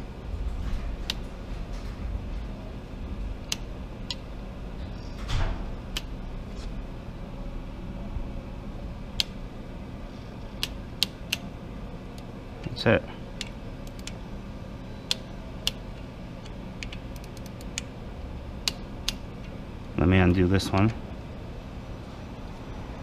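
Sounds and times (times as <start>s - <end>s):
low steady hum: 0.0s - 23.0s
torque wrench clicking: 16.4s - 17.9s.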